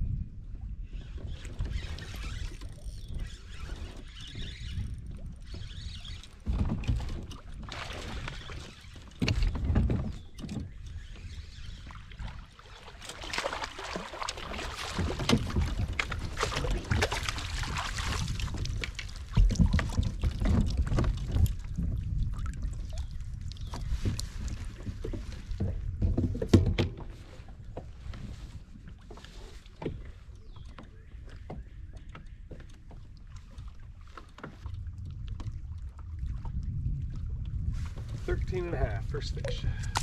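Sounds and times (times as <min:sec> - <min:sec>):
water lapping against hull: 0:00.0 - 0:40.0
fishing rod and reel handling: 0:01.4 - 0:06.5.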